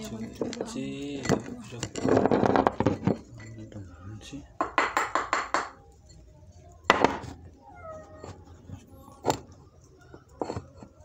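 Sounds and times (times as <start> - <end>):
cat meowing: 7.6 - 8.5.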